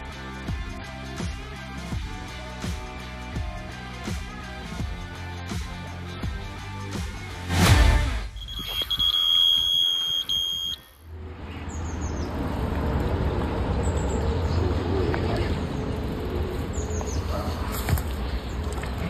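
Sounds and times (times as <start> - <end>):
outdoor background noise: 7.8 - 19.0
bite alarm high beep: 8.2 - 11.0.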